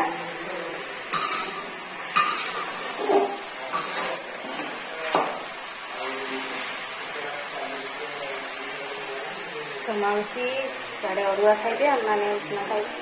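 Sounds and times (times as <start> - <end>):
pot and utensils clinking: 1.1 - 5.4.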